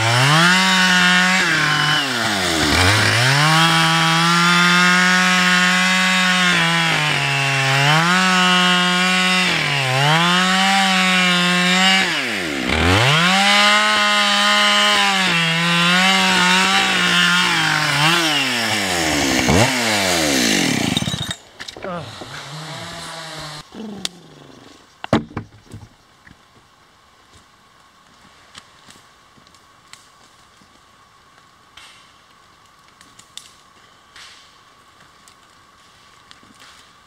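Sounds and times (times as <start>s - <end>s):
chainsaw cutting through log: 0.0s - 24.4s.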